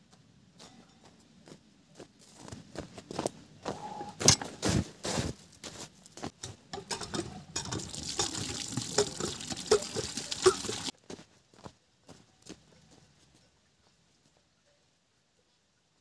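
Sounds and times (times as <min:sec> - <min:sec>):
footsteps: 0:00.0 - 0:14.4
water running into bucket: 0:06.8 - 0:10.9.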